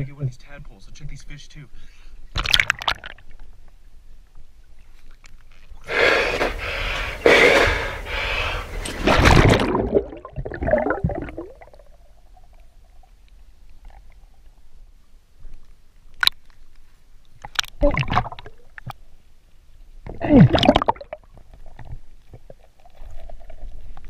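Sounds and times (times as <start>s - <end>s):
water gurgling: 2.3s - 3.4s, 8.8s - 14.8s, 17.4s - 19.0s, 20.0s - 24.0s
water splashing and sloshing: 2.3s - 6.8s, 8.7s - 19.1s, 20.0s - 24.0s.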